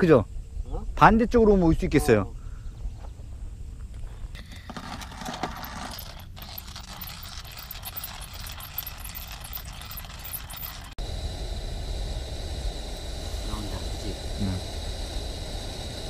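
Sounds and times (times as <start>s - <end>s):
high insect trill: 0.0s - 16.0s
hand-cranked coffee grinder grinding: 4.4s - 11.0s.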